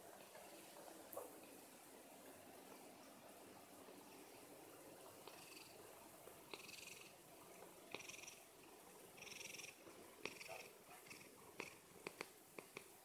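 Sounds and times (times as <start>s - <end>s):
cat purring: 3.9s - 13.0s.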